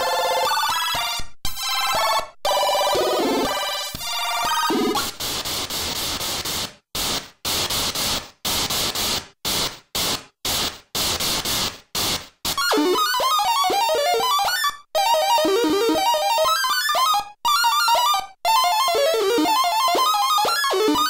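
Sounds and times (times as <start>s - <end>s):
synthesized noise claps: 5.0s - 12.8s
warbling chiptune arpeggio: 12.6s - 21.0s.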